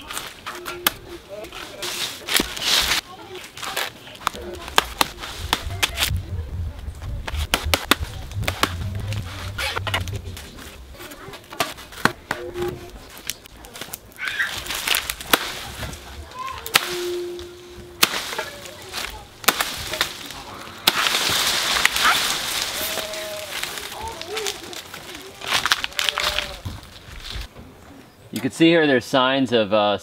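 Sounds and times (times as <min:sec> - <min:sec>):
blade chopping into palm trunk: 0:19.4 - 0:22.8.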